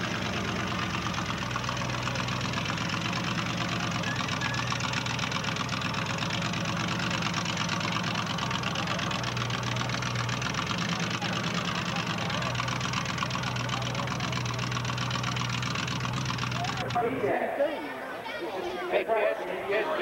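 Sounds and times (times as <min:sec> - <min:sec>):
truck engine idling: 0:00.0 - 0:17.5.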